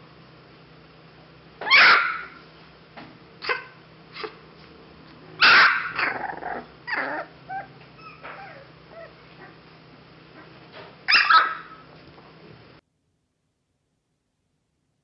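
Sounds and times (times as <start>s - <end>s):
puppy barking: 1.6s - 2.4s, 3.4s - 4.4s, 5.4s - 9.6s, 10.4s - 11.8s
squeaky puppy calls: 1.6s - 2.4s, 6.9s - 9.1s.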